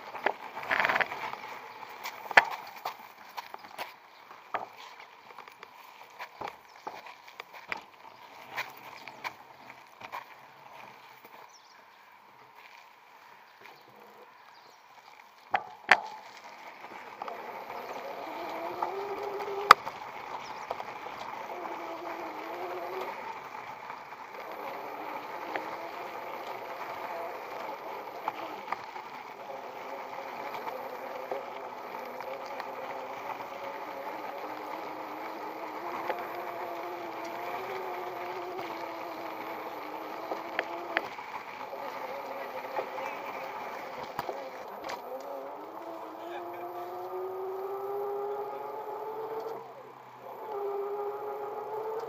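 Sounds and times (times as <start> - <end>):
bicycle rolling and rattling: 0.0 - 52.0
electric motor whining: 15.6 - 52.0.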